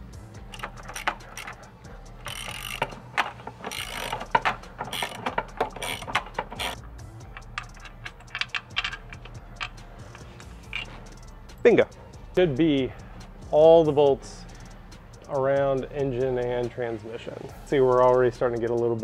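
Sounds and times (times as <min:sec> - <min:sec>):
hand ratchet clicking: 0:00.0 - 0:11.2.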